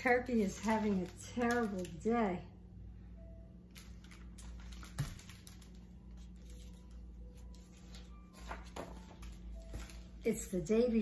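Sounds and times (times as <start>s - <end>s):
paper rustling: 0.0s - 2.0s, 3.7s - 10.2s
low steady hum: 0.0s - 11.0s.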